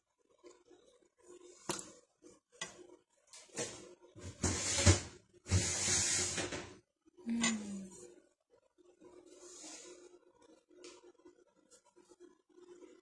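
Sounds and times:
cookware scraping: 3.6s - 6.8s.

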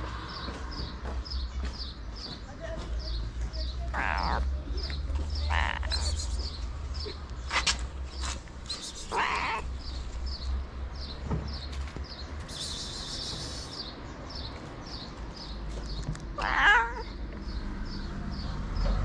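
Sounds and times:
cat meowing: 3.9s - 4.4s, 5.4s - 6.2s, 9.1s - 9.7s, 16.4s - 17.2s.

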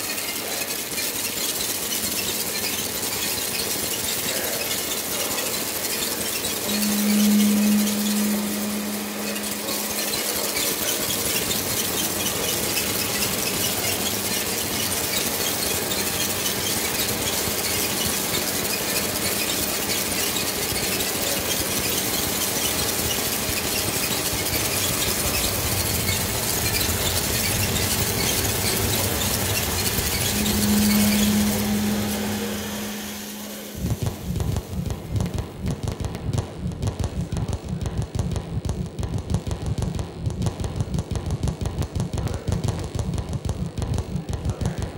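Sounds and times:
low hum: 6.6s - 11.3s, 29.0s - 35.6s.

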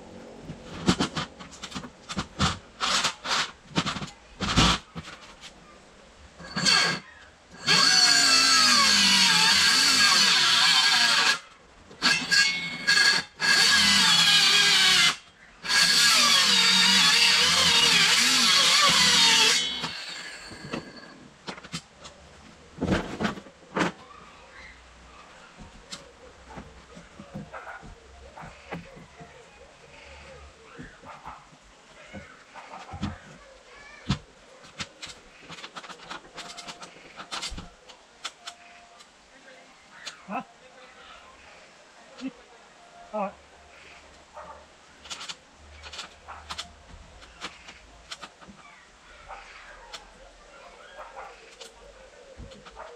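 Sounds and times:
power drill running: 6.4s - 11.4s, 12.0s - 21.1s.

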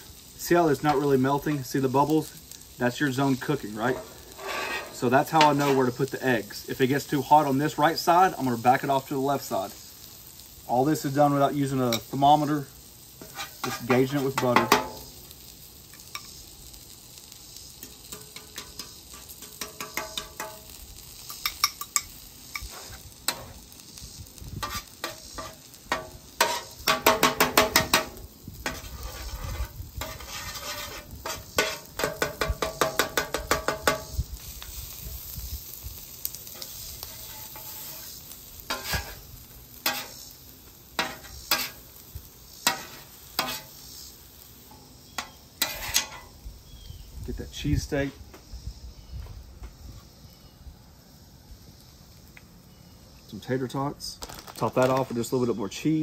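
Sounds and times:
eggs sizzling in butter: 0.0s - 48.1s
metal spatula scraping griddle: 2.4s - 6.2s, 13.1s - 15.1s, 15.9s - 23.7s, 24.5s - 35.3s, 36.0s - 40.4s, 41.0s - 46.4s.

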